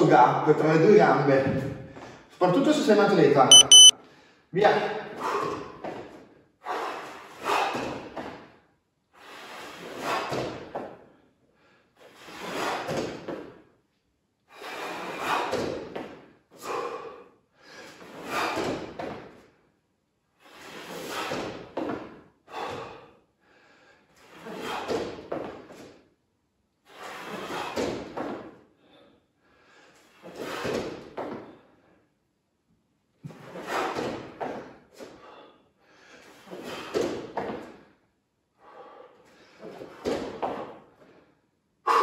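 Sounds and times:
person breathing hard: 0:16.6 - 0:18.7, 0:22.4 - 0:24.9, 0:28.8 - 0:30.1, 0:34.8 - 0:36.8, 0:38.5 - 0:39.9.

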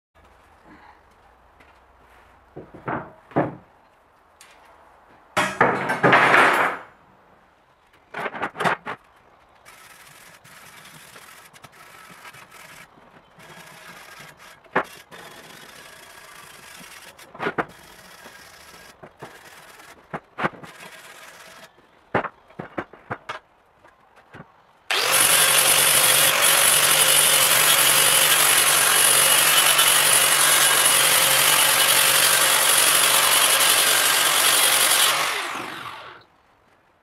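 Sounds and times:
scraping along steel: 0:08.2 - 0:23.3.

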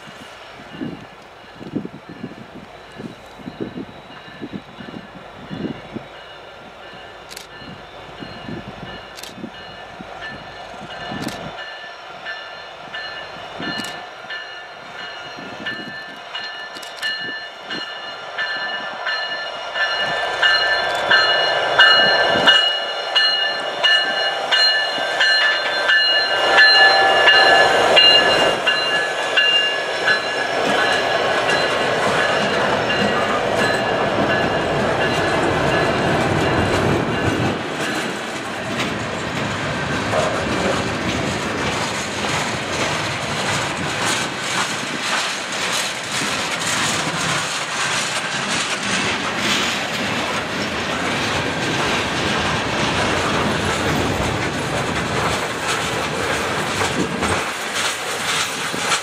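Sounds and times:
diesel locomotive passing: 0:00.0 - 0:59.0
freight cars rumbling: 0:18.4 - 0:59.0.

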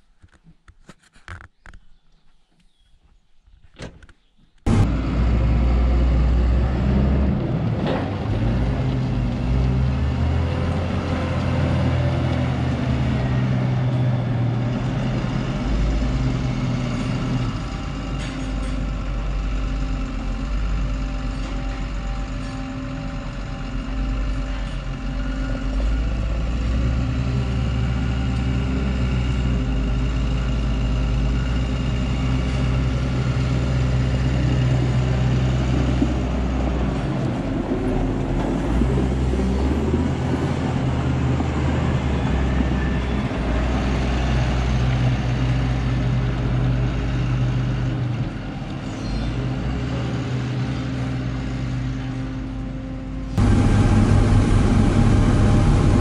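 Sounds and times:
diesel engine under load: 0:04.7 - 0:56.0.

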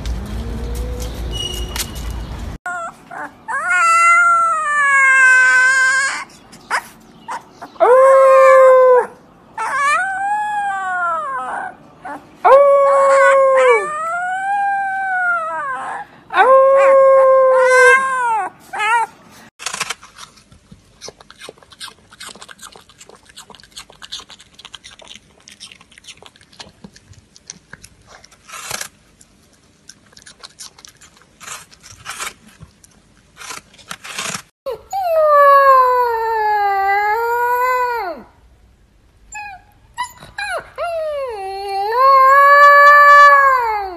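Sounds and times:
puppy howling: 0:02.7 - 0:06.3, 0:07.3 - 0:19.1, 0:34.7 - 0:38.3, 0:39.3 - 0:43.9
puppy chewing crunching: 0:19.6 - 0:34.5.

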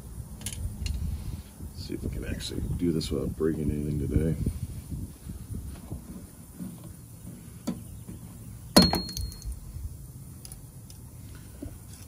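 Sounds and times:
high metallic ring: 0:08.8 - 0:09.6.

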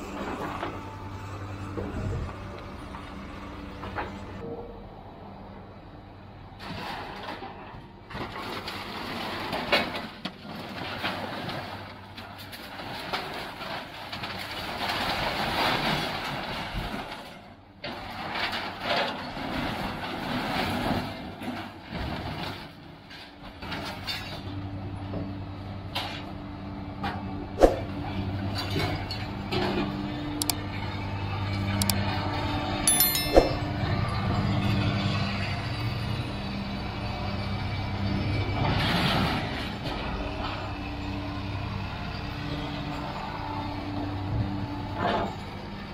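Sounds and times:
excavator engine hum: 0:00.0 - 0:16.2, 0:22.2 - 0:45.9
scrap metal scraping and clanking: 0:06.6 - 0:24.6.

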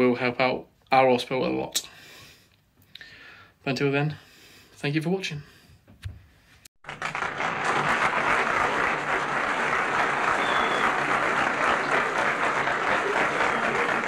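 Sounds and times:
crowd applauding: 0:06.8 - 0:14.0.

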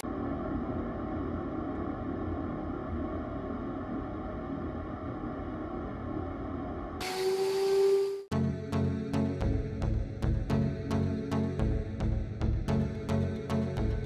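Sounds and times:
drill motor high whine: 0:07.0 - 0:08.3.

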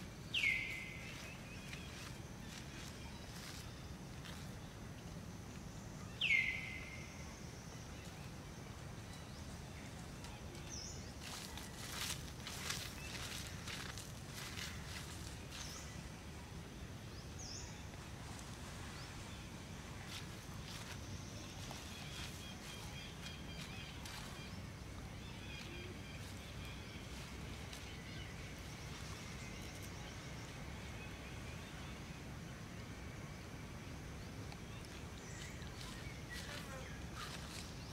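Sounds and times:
low background noise: 0:00.0 - 0:37.9
faint bird chirps: 0:00.3 - 0:04.7, 0:20.1 - 0:32.2
scratchy rustling in dry leaves: 0:00.4 - 0:04.6, 0:10.9 - 0:16.0, 0:19.9 - 0:24.8, 0:34.9 - 0:37.9.

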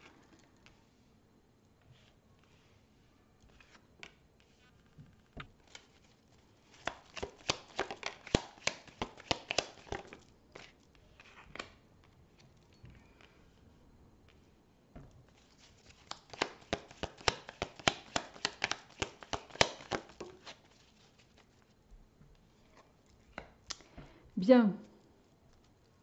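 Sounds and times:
cards snapping and slapping: 0:06.7 - 0:11.8, 0:15.8 - 0:20.8
cards tapping on table: 0:06.8 - 0:10.1, 0:16.0 - 0:20.6.

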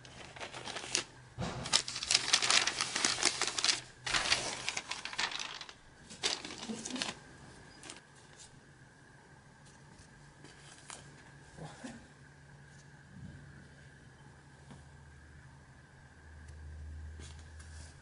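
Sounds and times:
plastic bag crinkling: 0:00.0 - 0:01.1, 0:01.7 - 0:08.0.

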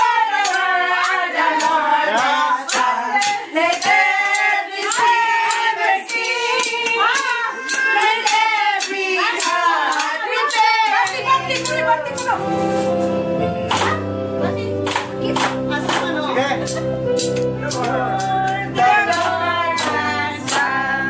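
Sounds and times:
women and child singing: 0:00.0 - 0:12.2, 0:17.8 - 0:21.0
sharp rhythmic taps: 0:00.0 - 0:12.3, 0:14.8 - 0:21.0.

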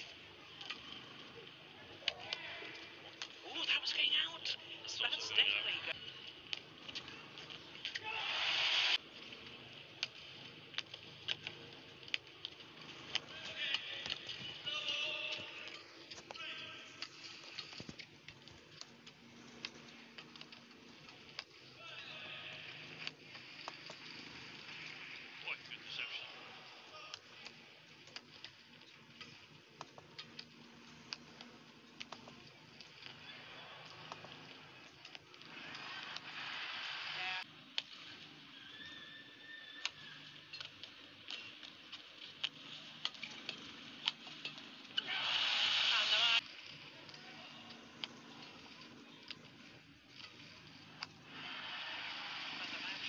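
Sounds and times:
faint arena hum: 0:00.0 - 0:53.0
burst of hiss-like noise: 0:08.2 - 0:09.0, 0:45.1 - 0:46.4.

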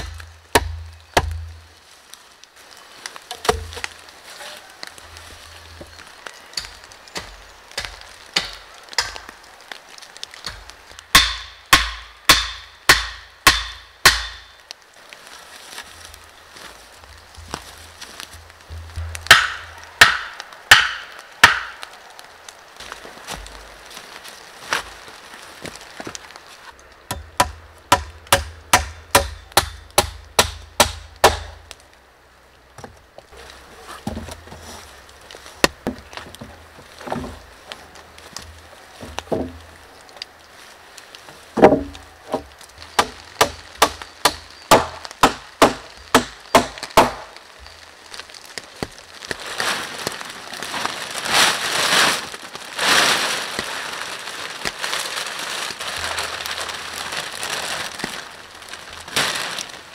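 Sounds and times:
plastic sheet rustling: 0:47.3 - 0:59.9.

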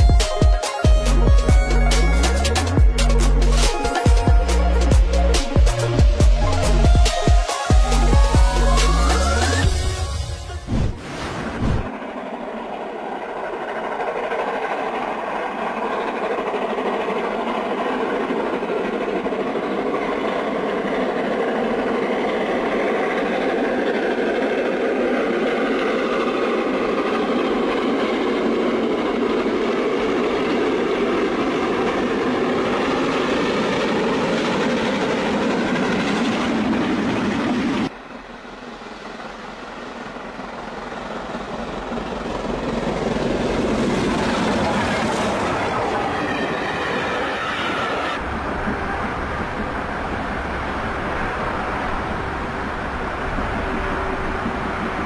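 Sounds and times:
steam locomotive exhaust rush: 0:00.0 - 0:55.0.

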